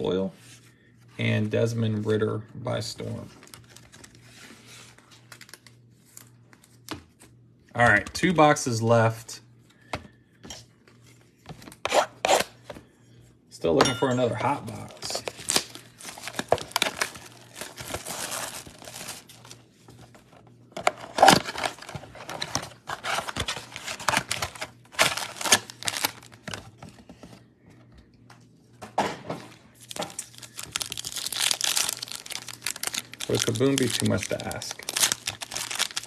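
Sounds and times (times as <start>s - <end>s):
plastic wrappers crinkling and tearing: 3.3s - 4.3s, 4.9s - 6.8s, 14.6s - 26.9s, 29.8s - 36.0s.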